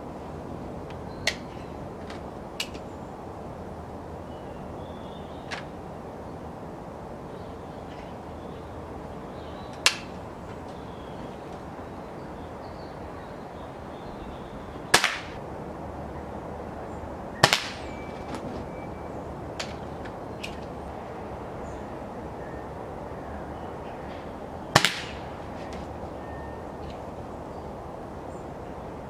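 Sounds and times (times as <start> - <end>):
air pistol shots: 9.8 - 10.1, 14.9 - 15.4, 17.4 - 18.0, 24.8 - 25.3.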